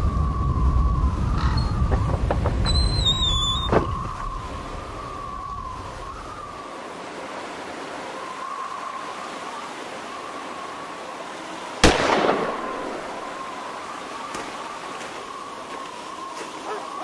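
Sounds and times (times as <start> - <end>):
steady hiss: 0.0 - 17.0
faint wavering high drone: 2.7 - 17.0.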